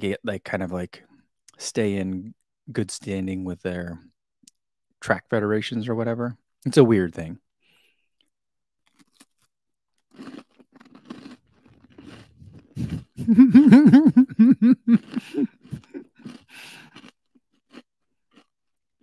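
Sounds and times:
man chewing crunchy bar: 8.2s - 19.0s
man humming: 12.8s - 15.9s.

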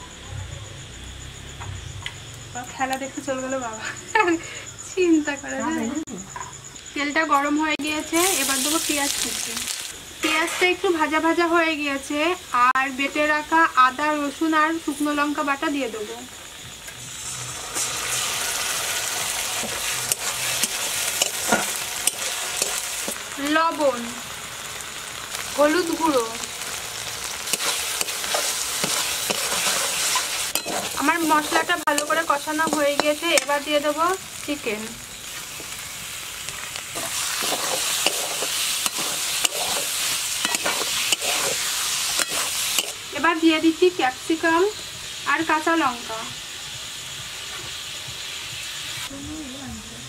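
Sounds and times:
paste sizzling in hot oil: 7.4s - 49.6s
metal spatula scraping pan: 27.5s - 33.5s, 37.0s - 43.0s.

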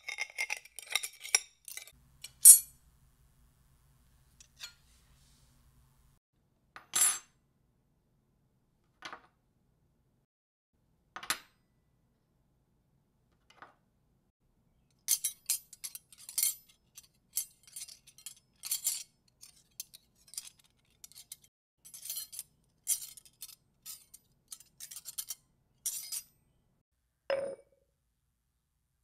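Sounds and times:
glass and tableware clinking: 27.3s - 27.8s.

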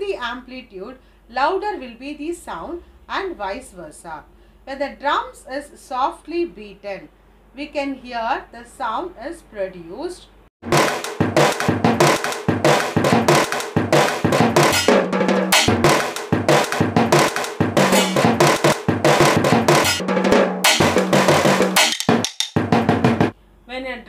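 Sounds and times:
drums beaten fast: 10.6s - 23.3s.

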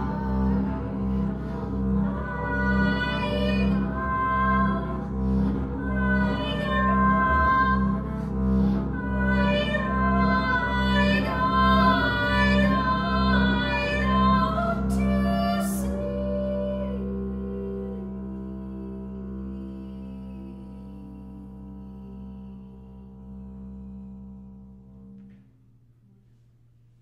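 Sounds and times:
woman singing: 0.0s - 8.1s, 8.9s - 22.0s
bowed double bass: 0.0s - 27.0s.

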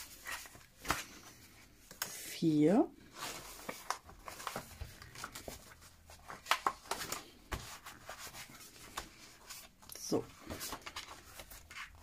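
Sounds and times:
paper rustling: 3.1s - 12.0s.

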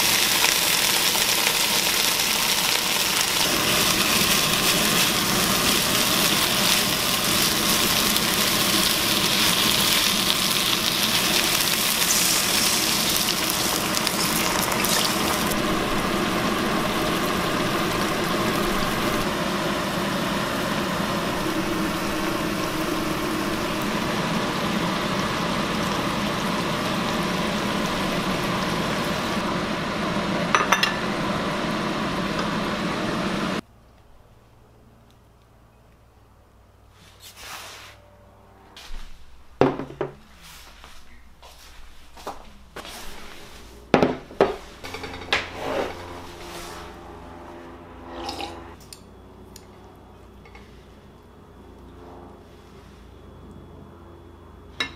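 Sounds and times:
food sizzling in a wok: 0.0s - 33.6s.

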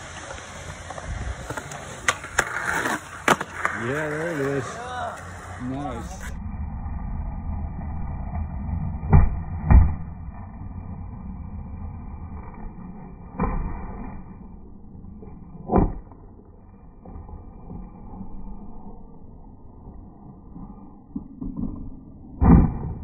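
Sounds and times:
skateboard clacks: 0.0s - 5.6s
skateboard wheels rolling on concrete: 0.0s - 23.0s.

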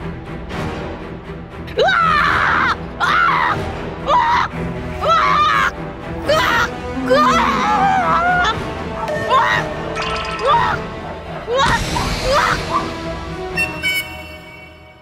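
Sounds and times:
background music: 0.0s - 15.0s
woman screaming: 1.8s - 9.7s.

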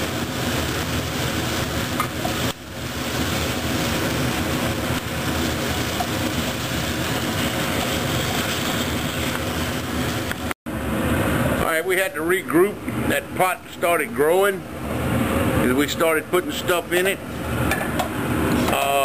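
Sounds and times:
meat sizzling in a skillet: 0.0s - 10.4s
steady hum: 0.0s - 19.0s.

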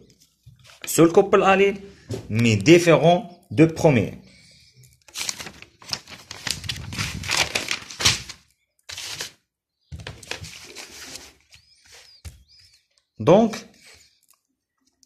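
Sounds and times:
paper rustling and shuffling: 0.1s - 1.1s, 5.0s - 12.8s.

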